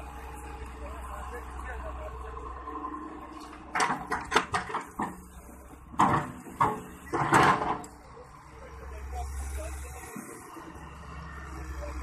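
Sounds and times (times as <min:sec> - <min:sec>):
metal clanks and knocks: 0:03.7 - 0:05.2, 0:05.9 - 0:07.9.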